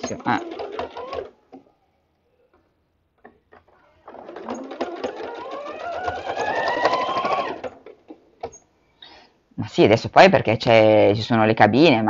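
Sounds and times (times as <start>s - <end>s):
sewing machine stitching: 0.0s - 1.6s, 3.2s - 8.6s.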